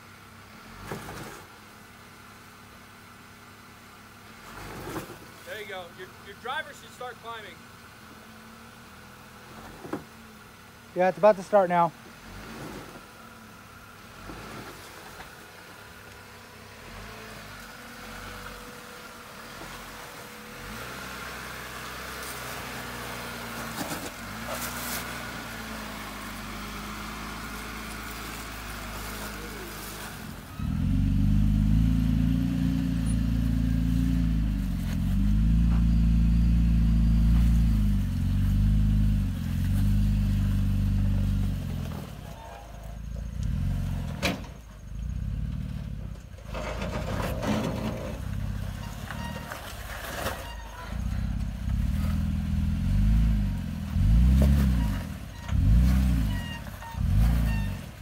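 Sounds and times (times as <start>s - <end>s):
engine revving: 19.5s - 49.7s, 50.7s - 58.0s
tyres spinning in sand: 46.0s - 58.0s.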